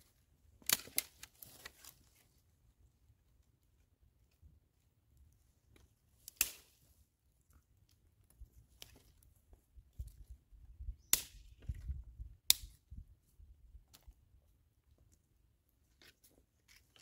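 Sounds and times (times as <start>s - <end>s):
rustling of wood being handled: 0.0s - 17.0s
dry sticks snapping: 0.6s - 2.0s, 5.7s - 6.8s, 11.0s - 12.8s.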